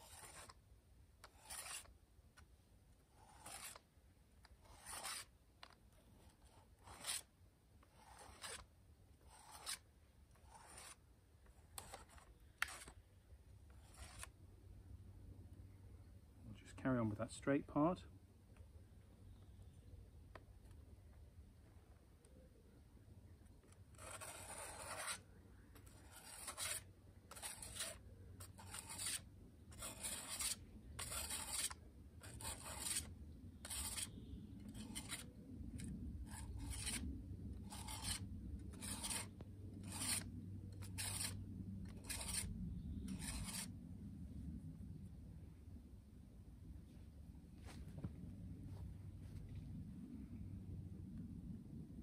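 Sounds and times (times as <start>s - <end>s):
blade stroked on sharpening plate: 0.0s - 0.5s, 1.4s - 1.9s, 3.3s - 3.8s, 4.6s - 5.3s, 9.3s - 9.8s, 10.5s - 11.0s, 24.0s - 25.2s, 26.0s - 29.2s, 29.8s - 34.1s.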